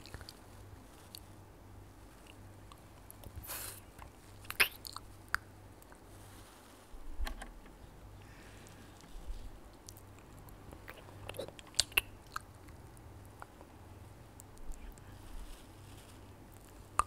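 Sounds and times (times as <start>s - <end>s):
lollipop licking and sucking: 4.4s - 5.1s, 10.8s - 12.8s.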